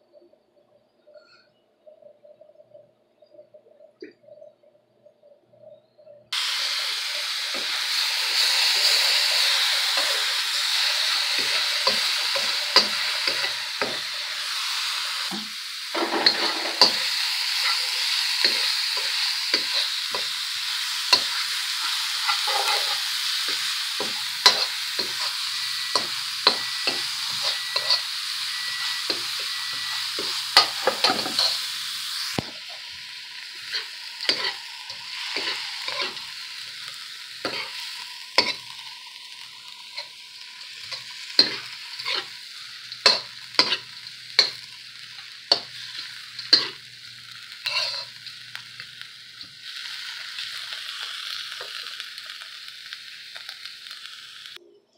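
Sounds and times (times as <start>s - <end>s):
rice sizzling in pan: 6.3s - 54.6s
metal spoon scraping pan: 16.0s - 20.4s, 21.1s - 31.7s, 33.6s - 36.3s, 37.4s - 37.8s, 38.4s - 38.8s, 40.8s - 42.4s, 43.0s - 46.8s, 47.6s - 48.3s.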